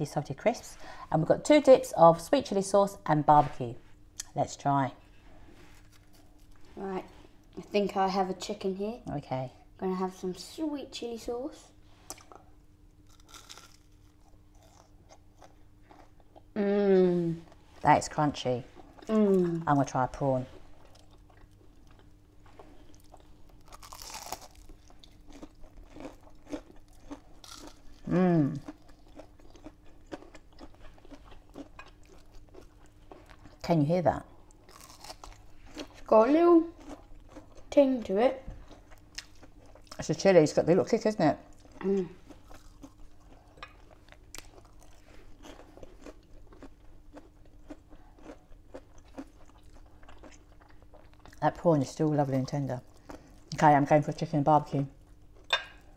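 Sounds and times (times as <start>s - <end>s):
crunching and chewing: 5.7s - 6.8s, 12.0s - 16.6s, 20.6s - 33.7s, 34.4s - 36.1s, 36.7s - 37.8s, 38.6s - 40.1s, 41.5s - 51.4s, 52.8s - 53.6s.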